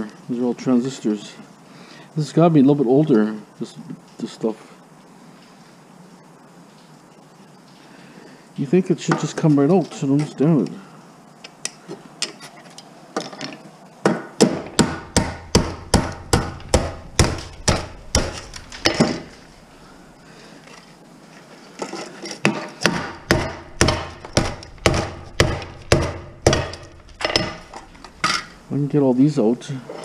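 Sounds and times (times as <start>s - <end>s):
hammer striking circuit board: 14.4s - 18.4s, 22.9s - 27.6s.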